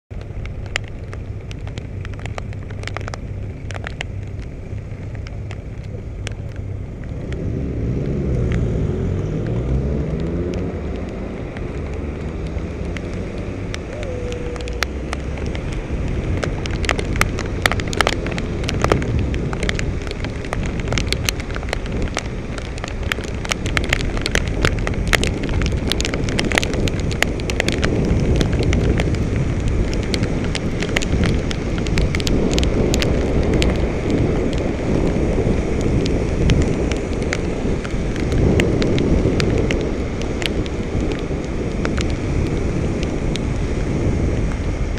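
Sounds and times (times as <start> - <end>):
raindrops ticking on camera: 0.1 - 44.9
wet road noise: 0.1 - 44.9
wind rumble: 0.1 - 44.9
vehicle passing close by: 7.1 - 16.8.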